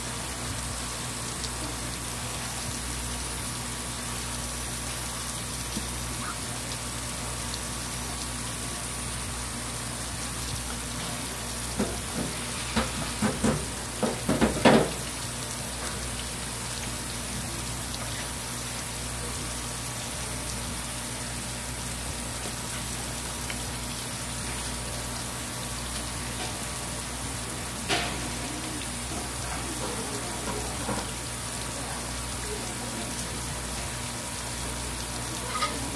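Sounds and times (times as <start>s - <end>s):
running water: 0.0s - 35.9s.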